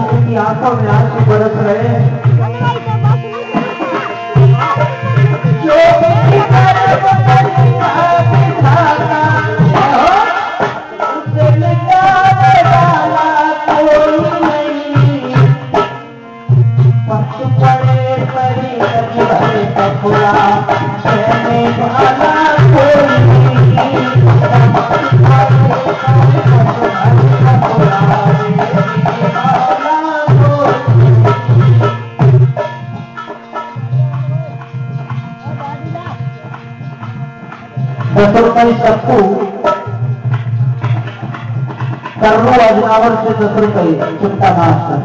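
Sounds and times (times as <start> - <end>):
held bending melody: 0.8 - 9.7
hand drum strokes: 1.1 - 44.4.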